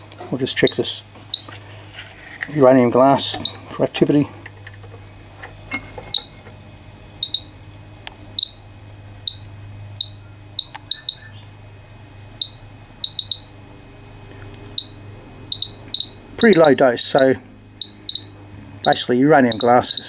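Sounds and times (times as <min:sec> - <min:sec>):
low hum: 0:00.0 - 0:20.0
geiger counter clicking: 0:00.6 - 0:01.6, 0:03.3 - 0:03.6, 0:06.1 - 0:06.3, 0:07.2 - 0:07.6, 0:08.4 - 0:08.6, 0:09.2 - 0:11.3, 0:12.4 - 0:13.5, 0:14.5 - 0:20.0.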